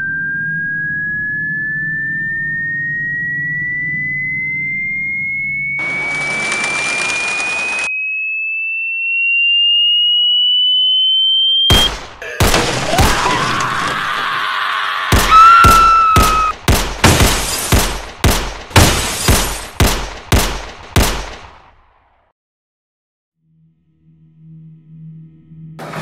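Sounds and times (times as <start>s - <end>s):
dense ringing noise with whistle: 0.0s - 11.9s
electronic tone gliding upward: 7.8s - 11.7s
heavy hits: 15.2s - 21.6s.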